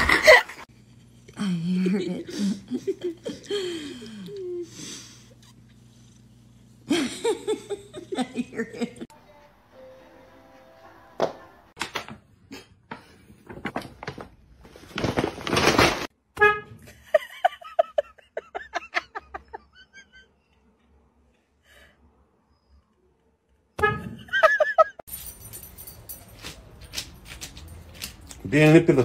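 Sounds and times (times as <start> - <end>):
car horn beeping: 16.4 - 16.9, 23.8 - 24.2.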